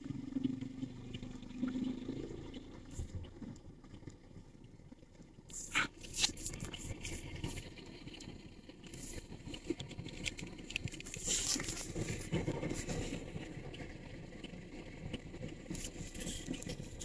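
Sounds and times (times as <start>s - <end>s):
low outdoor rumble: 0.0s - 17.0s
rustling and crackling: 5.5s - 17.0s.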